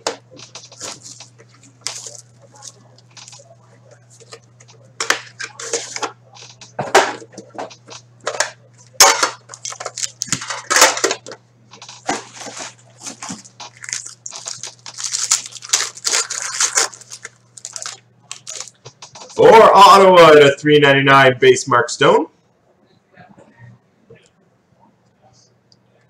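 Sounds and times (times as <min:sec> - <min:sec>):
low steady hum: 0:00.0 - 0:26.0
packaging rustling and crinkling: 0:00.4 - 0:03.5, 0:11.8 - 0:19.4.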